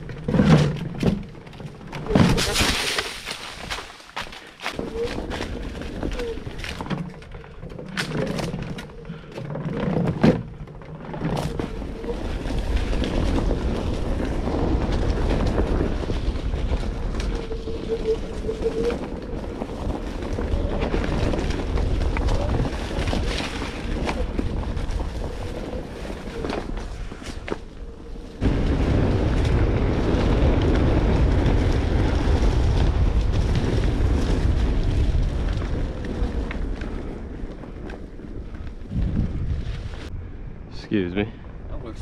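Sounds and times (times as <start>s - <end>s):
wind on microphone: 11.3s - 42.0s.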